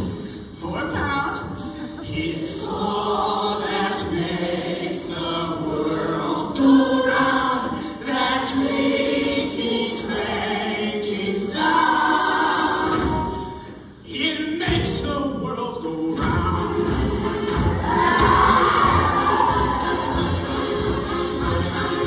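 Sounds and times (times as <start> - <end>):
choir singing: 2.0 - 13.6, 16.4 - 22.0.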